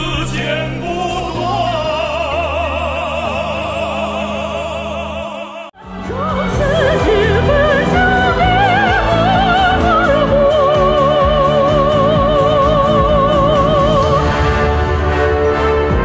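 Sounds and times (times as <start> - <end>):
operatic male voices singing: 0.0 - 14.6
orchestral accompaniment: 0.0 - 16.0.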